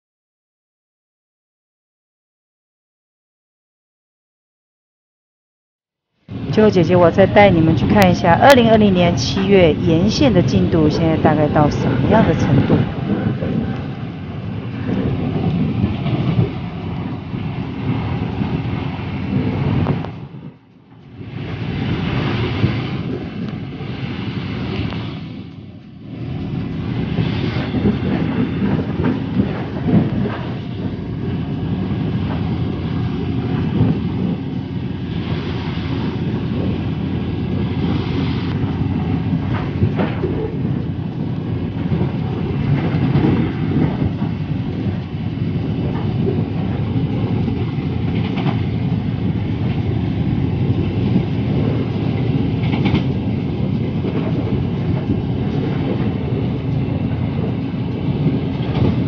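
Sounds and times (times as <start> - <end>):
train wheels rumbling on rail: 6.3 - 59.0
clacks over rail joints: 22.2 - 59.0.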